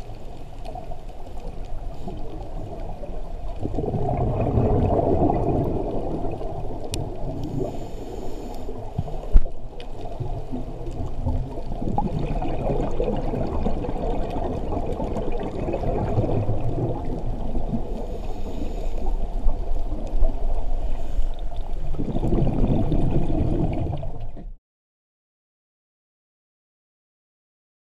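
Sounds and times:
exhaled bubbles: 0:00.0 - 0:24.6
underwater rumble and gurgling: 0:00.0 - 0:24.6
scuba regulator breath hissing: 0:07.5 - 0:09.2, 0:17.8 - 0:19.2.

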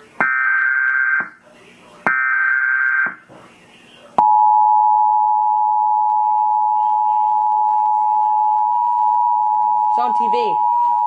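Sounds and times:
two-tone alert signal: 0:04.2 - 0:11.0.

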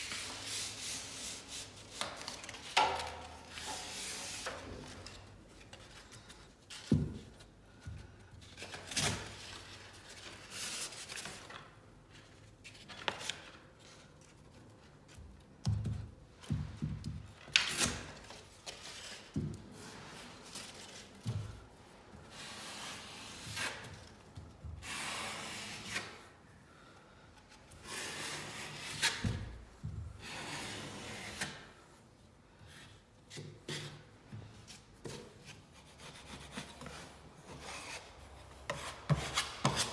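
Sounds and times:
drywall knife scraping: 0:22.3 - 0:24.1, 0:24.8 - 0:26.3, 0:27.7 - 0:29.6, 0:30.2 - 0:31.8, 0:35.0 - 0:39.9.

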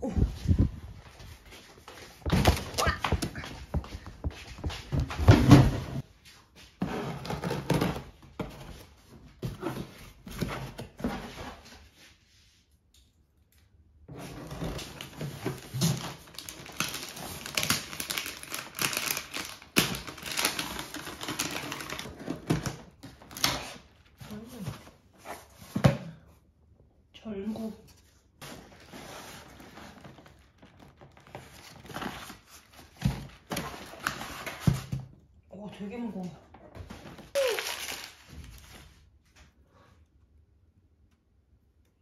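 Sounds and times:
cardboard boxes knocking and scraping: 0:02.1 - 0:06.0.

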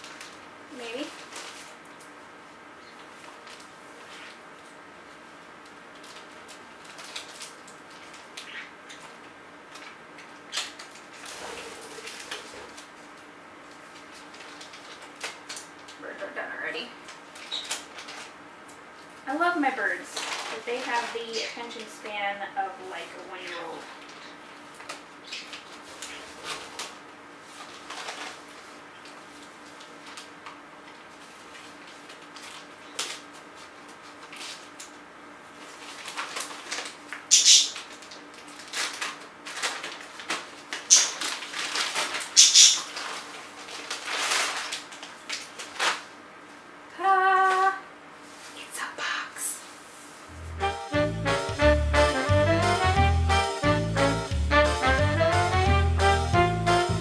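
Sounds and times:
plastic crinkling: 0:00.0 - 0:02.2, 0:03.0 - 0:22.1, 0:23.0 - 0:46.2.

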